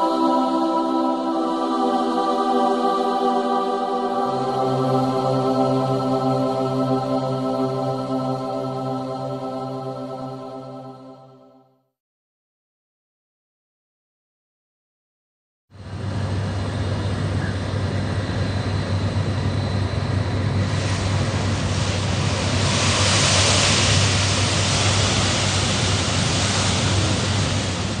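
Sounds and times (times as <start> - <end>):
oil fire roaring: 15.8 - 28.0
hiss: 20.5 - 28.0.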